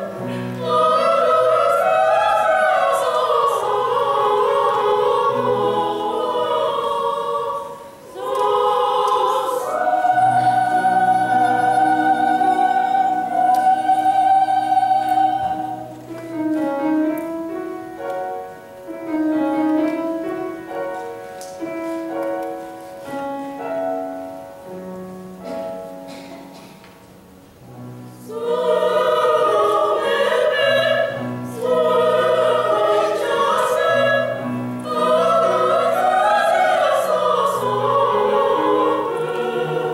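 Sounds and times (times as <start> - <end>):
women singing operatically: 0.0 - 16.0, 28.2 - 39.9.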